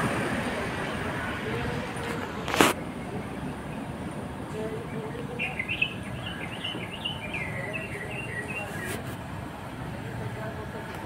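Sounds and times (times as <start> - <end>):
low background noise: 0.0 - 11.0
songbird chirping: 2.8 - 9.2.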